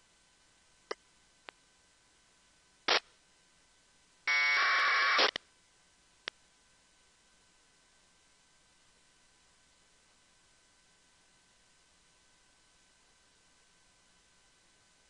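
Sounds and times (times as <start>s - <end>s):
burst of static: 4.5s - 5.4s.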